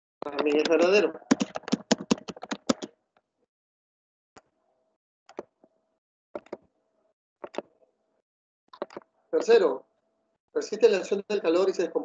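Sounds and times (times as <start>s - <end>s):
computer mouse clicks: 6.4s - 6.7s, 7.4s - 7.7s, 8.8s - 9.1s.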